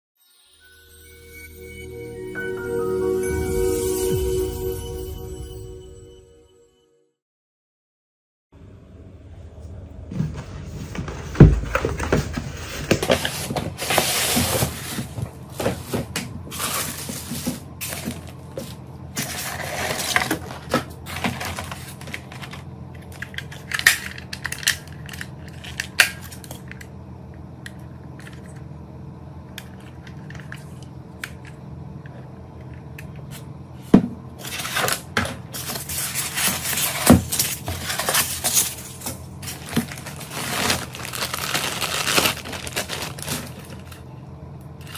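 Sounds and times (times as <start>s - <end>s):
packing rustling and scraping: 10.2s - 22.6s, 34.4s - 44.0s
cardboard box being opened: 35.6s - 43.8s.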